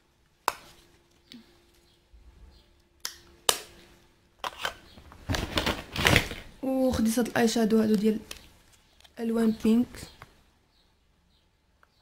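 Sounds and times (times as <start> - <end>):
plastic cases clicking and knocking: 5.2 - 6.5.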